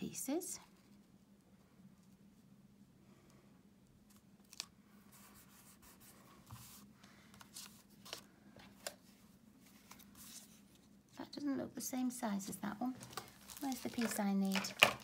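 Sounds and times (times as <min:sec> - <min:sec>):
paper rustling: 0:13.0 - 0:15.0.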